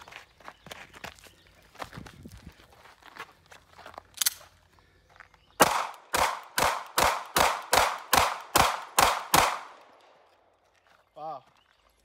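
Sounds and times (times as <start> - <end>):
pistol shots: 5.6 - 10.2.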